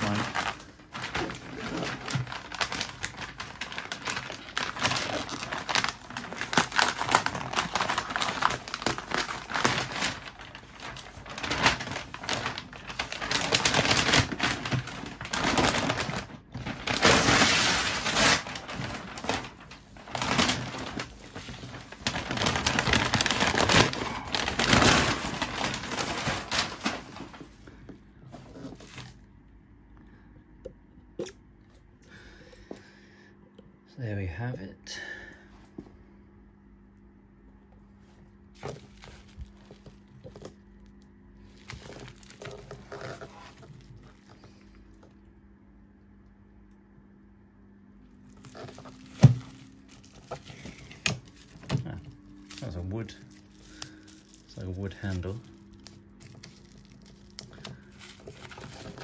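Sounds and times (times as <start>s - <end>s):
paper crinkling and tearing: 0.0s - 29.2s, 38.5s - 45.0s, 48.1s - 59.0s.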